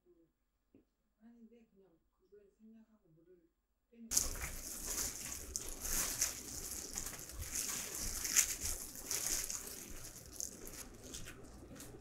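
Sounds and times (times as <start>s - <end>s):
plastic gloves crinkling on leaves: 4.1s - 12.0s.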